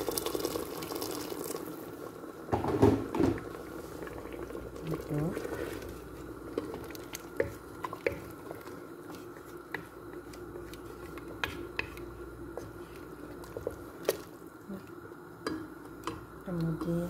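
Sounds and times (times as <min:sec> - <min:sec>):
spoon stirring wet sloshing: 0:03.4 - 0:17.0.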